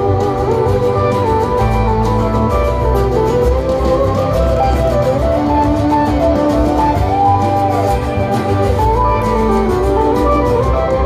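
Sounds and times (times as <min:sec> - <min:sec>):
plucked guitar: 0:00.0 - 0:11.0
steady beat: 0:00.0 - 0:11.0
violin melody: 0:00.0 - 0:11.0.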